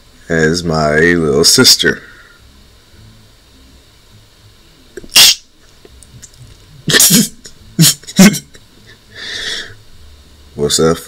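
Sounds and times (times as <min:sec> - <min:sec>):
person laughing: 0:06.8 - 0:08.7.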